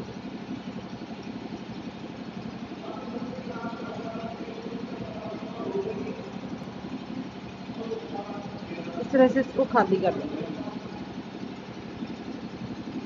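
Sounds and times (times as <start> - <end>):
steady low hum: 0.0 - 13.0
faint voices: 2.7 - 11.2.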